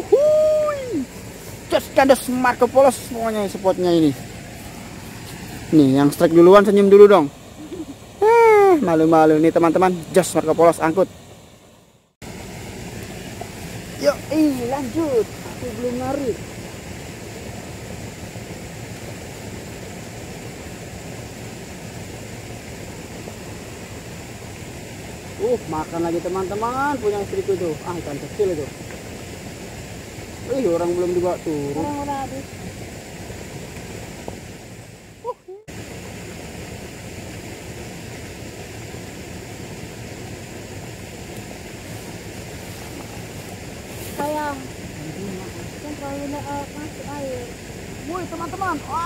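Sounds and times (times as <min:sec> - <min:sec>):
river rushing: 0:00.0 - 0:49.0.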